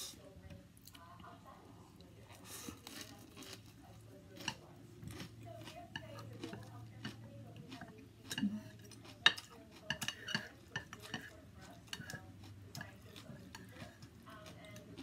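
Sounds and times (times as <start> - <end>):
utensils clicking on a plate: 5.8 - 15.0.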